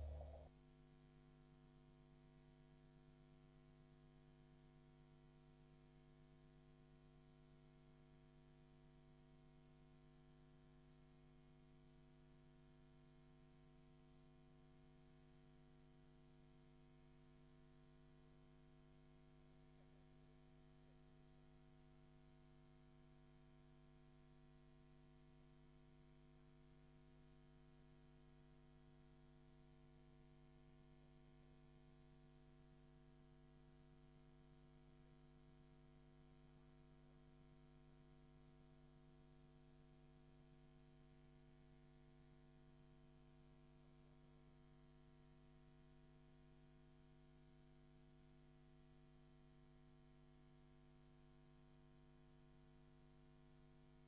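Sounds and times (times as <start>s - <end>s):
faint electrical hum: 0.0s - 0.5s.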